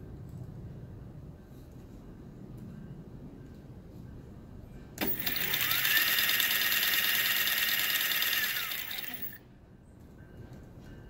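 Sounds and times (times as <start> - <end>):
stepper motors whining: 5.0 - 9.4.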